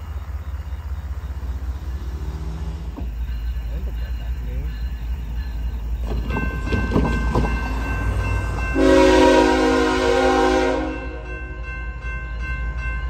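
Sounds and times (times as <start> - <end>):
locomotive rumble: 0.0 - 13.0
railroad crossing bell ringing: 1.6 - 13.0
locomotive air horn chord: 8.7 - 11.4.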